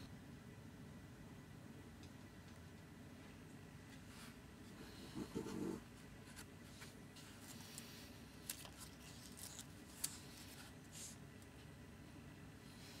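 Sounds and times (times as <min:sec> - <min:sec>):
paper rustling: 0:06.2 - 0:11.2.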